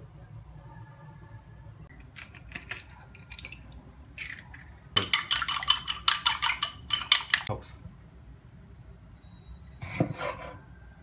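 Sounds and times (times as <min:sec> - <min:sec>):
utensil beating eggs in bowl: 0:04.3 - 0:07.5.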